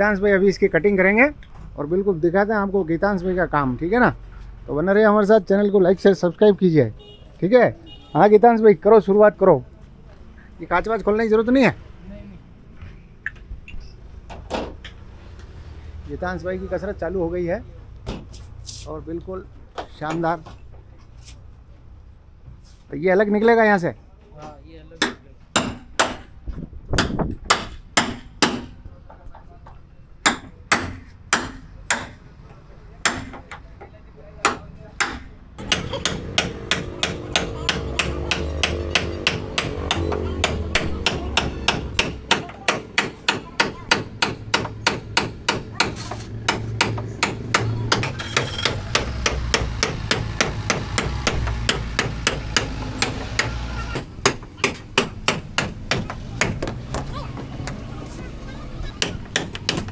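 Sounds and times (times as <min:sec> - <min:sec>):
hammer striking chisel on metal: 0:25.0 - 0:26.3, 0:27.0 - 0:28.7, 0:30.2 - 0:32.2, 0:33.0 - 0:33.6, 0:34.4 - 0:56.8, 0:59.0 - 0:59.9.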